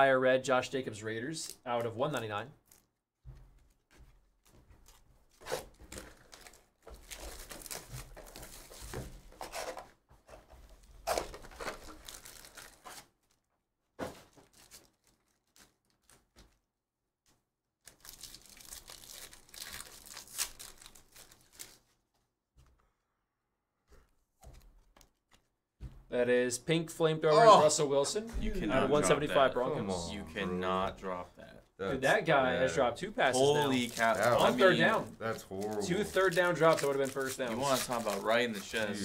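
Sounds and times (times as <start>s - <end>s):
foil wrappers tearing and crinkling: 5.4s - 9.0s, 11.0s - 13.4s, 14.2s - 16.5s, 17.8s - 22.0s, 33.3s - 39.0s.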